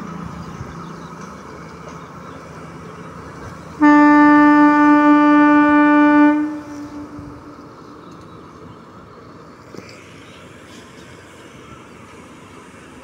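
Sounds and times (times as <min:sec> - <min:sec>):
locomotive horn blast: 0:03.8 - 0:07.7.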